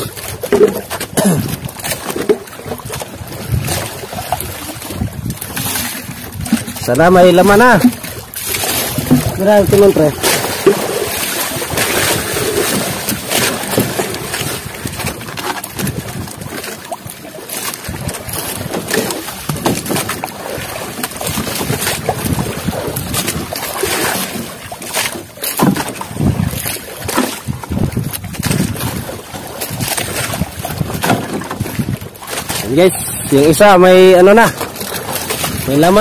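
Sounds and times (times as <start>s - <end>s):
wind buffeting microphone: 0.0s - 24.6s, 25.7s - 36.0s
water splashing and sloshing: 0.0s - 36.0s
fish trap knocking: 5.5s - 14.1s.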